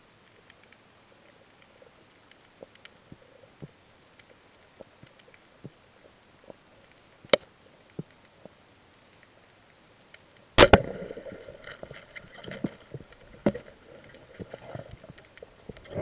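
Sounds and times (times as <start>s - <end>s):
speargun crack underwater: 10.6s - 16.0s.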